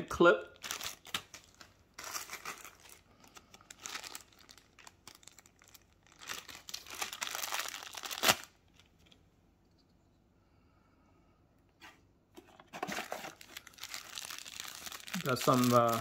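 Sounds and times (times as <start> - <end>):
plastic bag crinkling: 0.5 - 9.0, 12.4 - 16.0.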